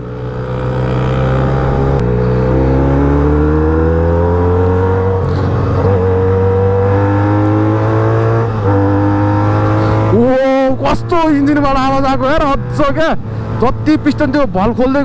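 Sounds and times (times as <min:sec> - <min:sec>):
motorcycle engine running: 0:00.0 - 0:07.2.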